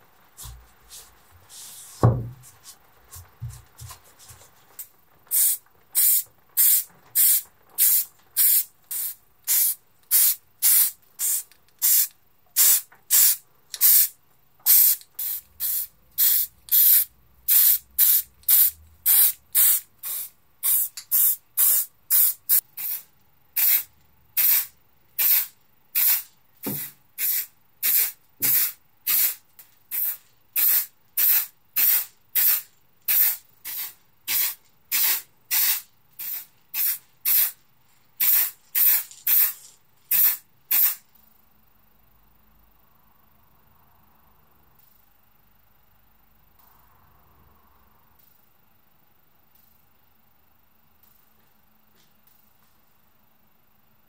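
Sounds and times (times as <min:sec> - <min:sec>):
spray paint can hissing: 0:05.3 - 0:37.6, 0:38.2 - 0:41.0.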